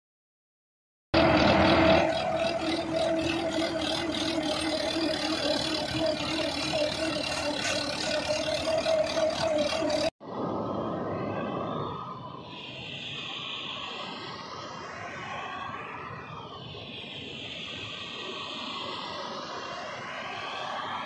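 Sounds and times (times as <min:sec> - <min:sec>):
trencher mechanical clatter: 0:01.2 - 0:10.1
tractor diesel engine under load: 0:01.2 - 0:10.2.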